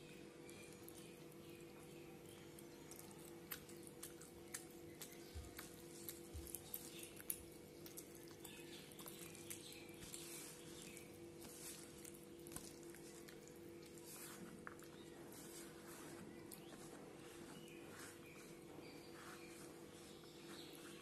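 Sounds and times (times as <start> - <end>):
faint steady hum: 0.0 - 21.0
person chewing wetly: 0.4 - 15.3.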